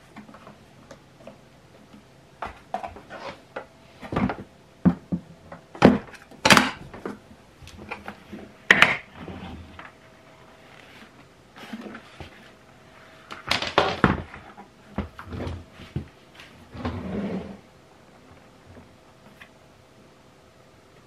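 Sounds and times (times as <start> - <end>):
rustling: 6.9 - 19.5.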